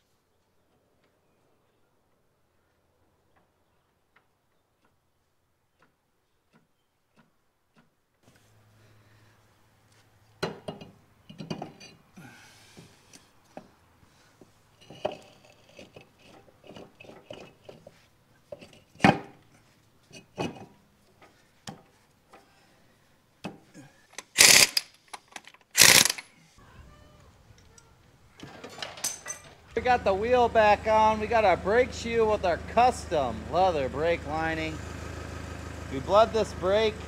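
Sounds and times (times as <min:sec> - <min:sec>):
metal clanks and scrapes: 0:14.8 - 0:19.3
loud short bursts: 0:24.2 - 0:24.9, 0:25.8 - 0:26.3.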